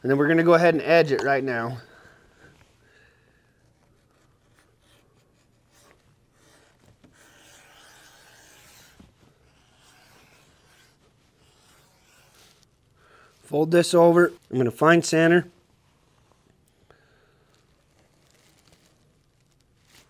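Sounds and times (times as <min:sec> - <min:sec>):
leather edger scraping: 0:07.1 - 0:12.7.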